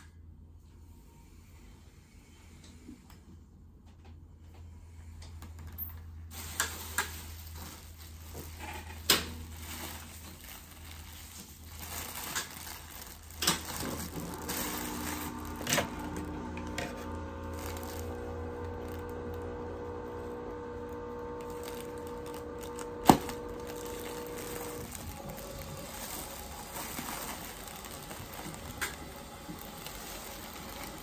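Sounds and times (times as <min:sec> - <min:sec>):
plastic bag crinkling: 0:06.3 - 0:31.0.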